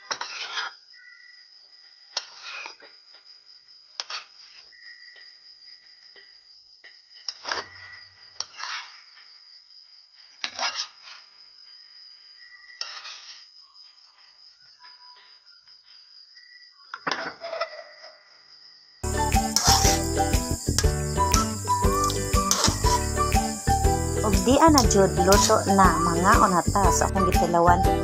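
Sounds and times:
high-pitched trill: 19.0 - 28.0
metal spoon scraping cooking pot: 19.6 - 20.2.

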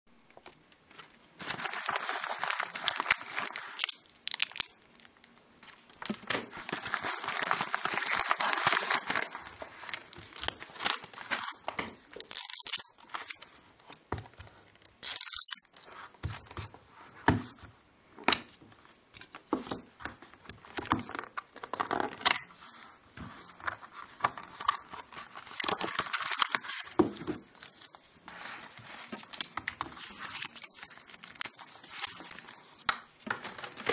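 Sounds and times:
paper rustling: 0.9 - 4.7
paper envelope tearing: 1.4 - 4.7, 12.2 - 13.4.

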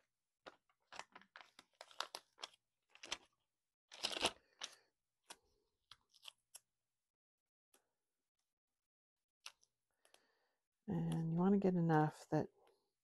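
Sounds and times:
plastic bag crinkling: 0.8 - 4.8.

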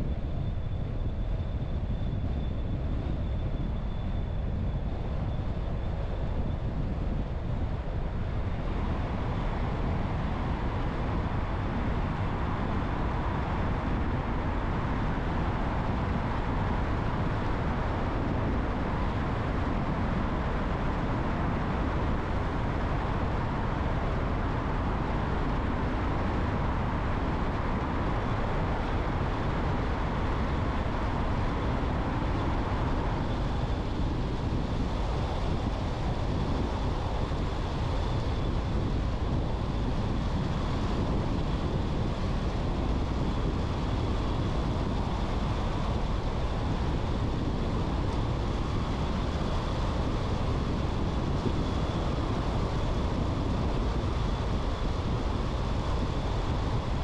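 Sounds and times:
car tyre and wind noise: 0.0 - 57.0.

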